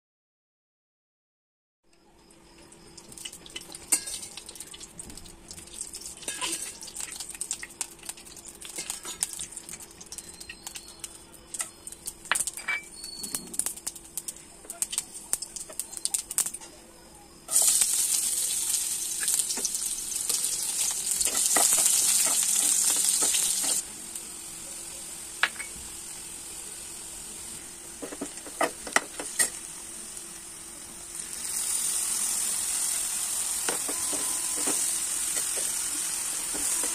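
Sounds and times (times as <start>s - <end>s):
spices sizzling in hot oil: 2.2s - 16.7s, 17.4s - 36.9s
onions hissing in oil: 17.5s - 36.9s.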